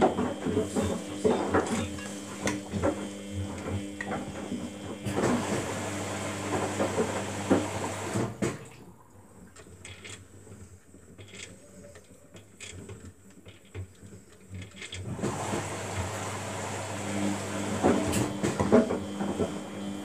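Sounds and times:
washing machine motor hum: 0.0 - 11.6, 12.2 - 20.0
faint clicks and knocks: 9.4 - 15.1.

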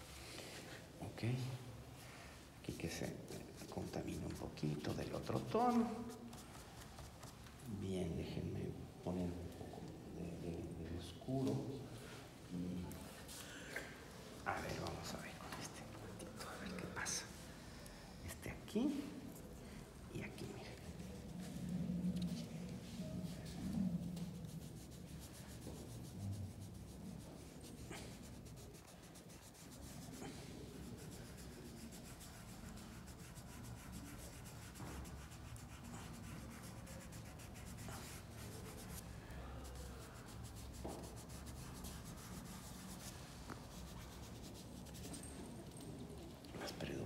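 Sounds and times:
pastel scratching on paper: 2.7 - 7.4, 20.3 - 46.4.

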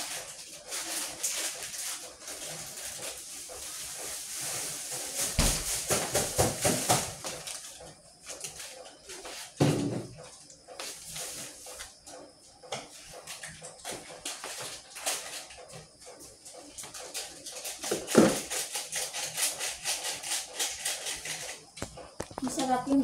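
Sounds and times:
kitchen knocks and clatter: 4.9 - 7.4, 9.6 - 10.4, 16.8 - 23.0.

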